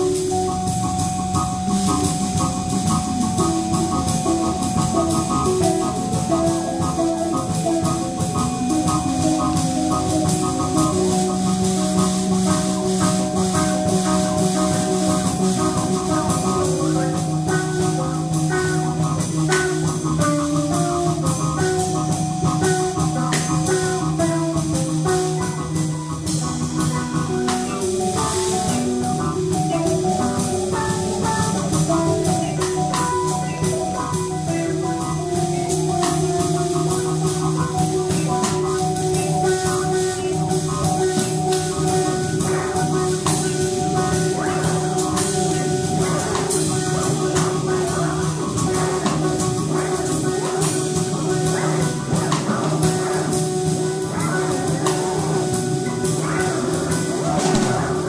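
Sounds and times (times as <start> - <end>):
drums and cymbals: 0.0 - 58.0
pitched melody notes: 0.0 - 58.0.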